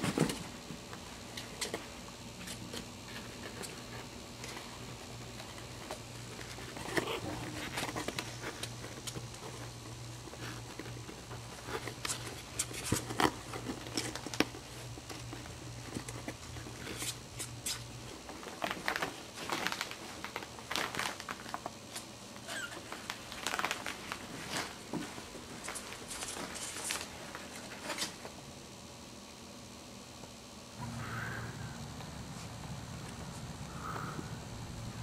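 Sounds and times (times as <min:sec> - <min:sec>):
puppies scratching in box: 0:02.4 - 0:28.3
paper lining crinkling: 0:18.4 - 0:28.2.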